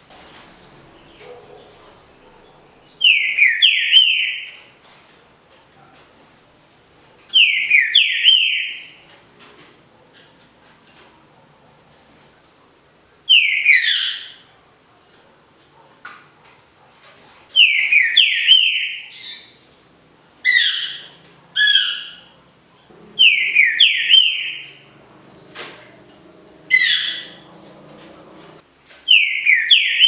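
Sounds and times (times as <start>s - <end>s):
bird whistling song: 2.3s - 4.7s, 7.4s - 9.0s, 13.3s - 14.3s, 17.6s - 19.6s, 23.2s - 25.0s, 29.1s - 30.0s.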